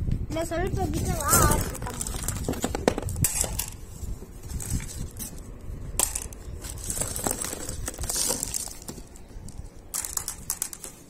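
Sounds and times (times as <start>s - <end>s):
hand rummaging in cardboard box: 1.2s - 2.7s
glass marbles clicking: 9.9s - 11.0s.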